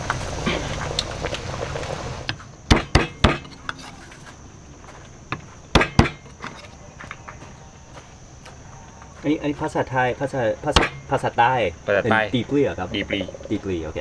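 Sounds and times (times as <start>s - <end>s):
knife chopping on wooden board: 2.7s - 3.6s.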